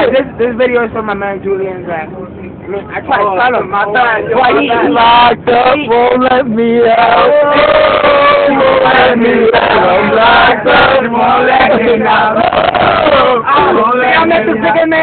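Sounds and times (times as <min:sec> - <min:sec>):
men singing and chanting together: 0:03.3 - 0:15.0.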